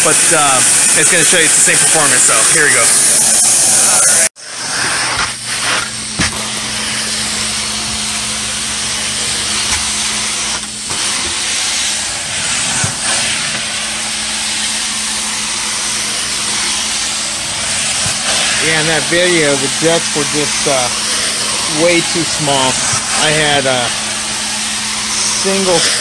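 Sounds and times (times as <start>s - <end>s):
carpet cleaning wand hissing: 0.0s - 26.0s.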